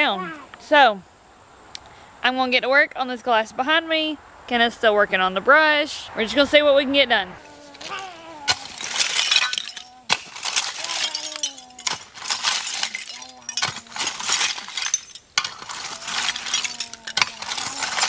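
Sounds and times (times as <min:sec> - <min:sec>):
glass shards clinking: 0:07.4 - 0:18.0.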